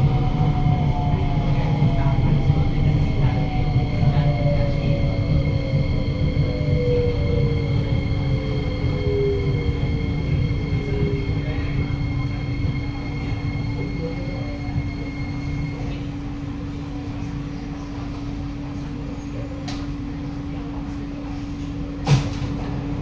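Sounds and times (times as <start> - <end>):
steady high whine: 0.0 - 16.8
train braking rumble: 0.0 - 18.3
train equipment hum: 0.0 - 23.0.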